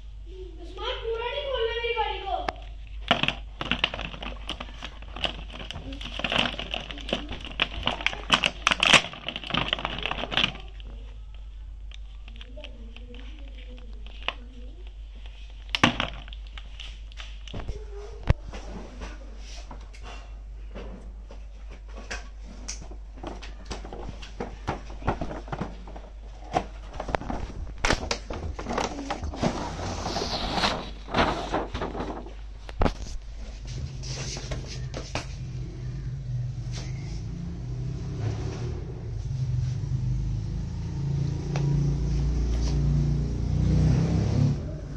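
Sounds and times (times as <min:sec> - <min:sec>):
plastic blister tray crackling: 0:02.5 - 0:18.4, 0:22.7 - 0:33.3
rustling: 0:02.6 - 0:11.5, 0:21.3 - 0:35.6.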